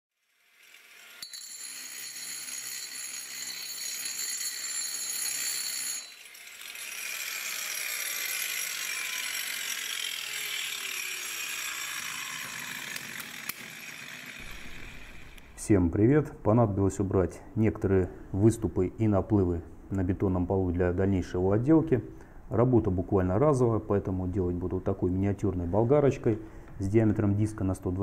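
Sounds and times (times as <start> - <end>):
angle grinder motor whining: 0.2 - 15.6
grinding wheel scraping concrete: 0.2 - 15.6.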